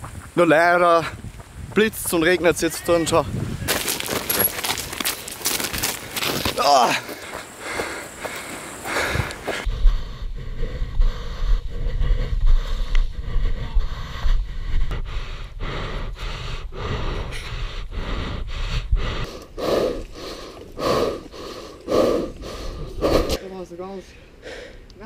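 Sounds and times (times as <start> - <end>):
footsteps scuffing on stone: 1.2 - 9.7
heavy breathing: 5.8 - 24.9.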